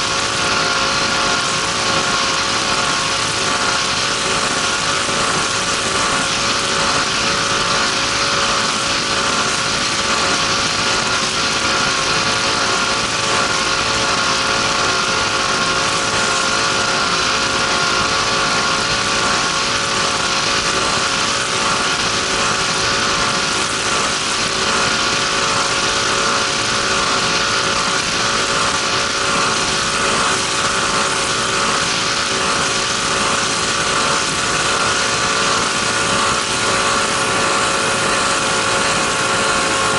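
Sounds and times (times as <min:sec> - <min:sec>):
boat engine running hard: 0:00.0 - 0:39.9.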